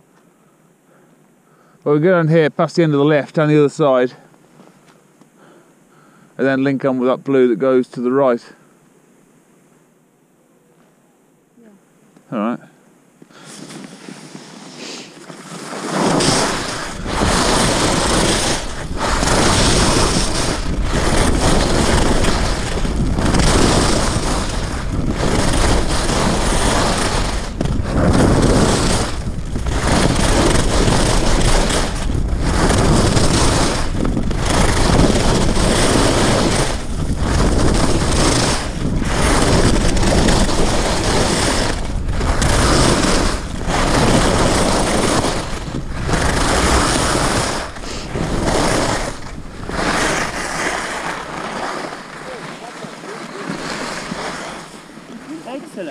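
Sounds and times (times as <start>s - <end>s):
skis running over snow: 13.3s - 55.9s
wind noise on microphone: 13.4s - 55.8s.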